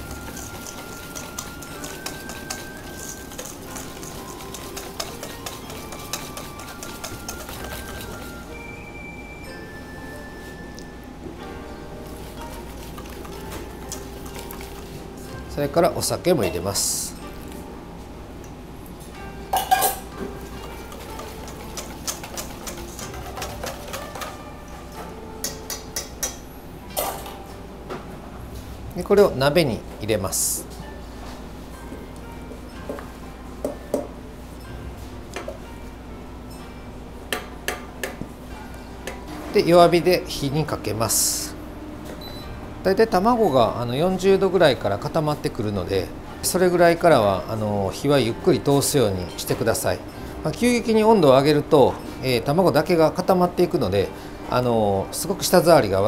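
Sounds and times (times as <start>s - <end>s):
whisk scraping metal bowl: 0.0s - 8.5s, 12.0s - 14.9s, 20.4s - 24.4s.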